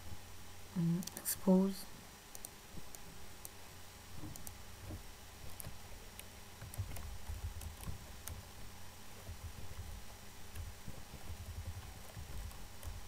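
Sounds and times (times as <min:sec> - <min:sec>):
keyboard typing: 0:02.3 - 0:03.1, 0:04.2 - 0:13.0.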